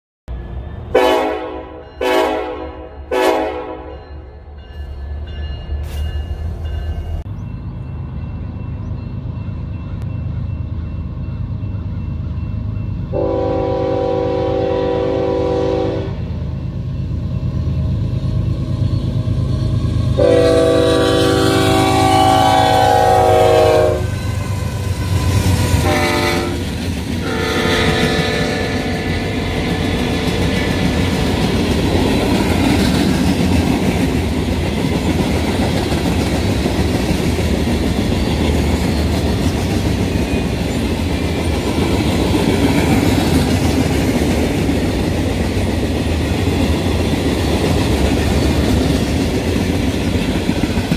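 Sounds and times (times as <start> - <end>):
diesel locomotives passing: 0.3 - 50.9
train horn blasts: 0.5 - 4.2, 13.1 - 16.3, 20.2 - 30.0.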